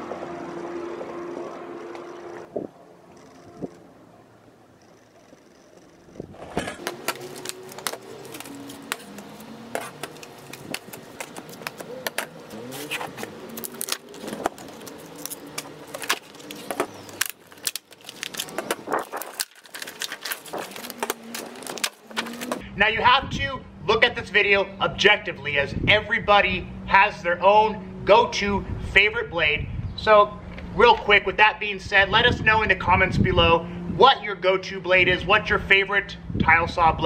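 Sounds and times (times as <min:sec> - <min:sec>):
low hum: 0:00.0 - 0:25.0
plastic packaging crackling: 0:06.4 - 0:22.6.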